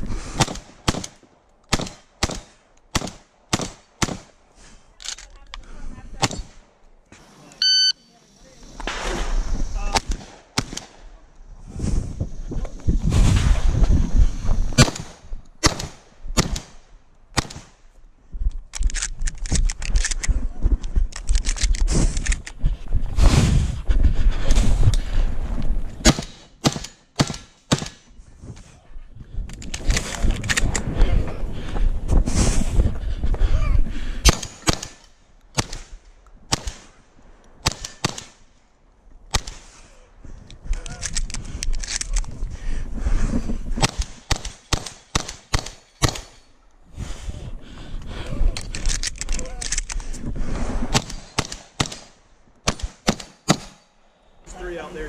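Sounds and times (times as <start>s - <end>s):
shotgun shots: 0.4s - 4.3s, 8.9s - 11.0s, 14.8s - 17.8s, 26.0s - 28.0s, 34.2s - 37.0s, 37.6s - 38.4s, 43.8s - 46.4s, 50.9s - 53.8s
wind rumbling on microphone: 8.5s - 26.2s, 28.0s - 34.9s, 38.8s - 45.6s, 46.7s - 51.8s
running footsteps: 17.9s - 25.9s
handling clatter and rustling: 48.5s - 50.3s.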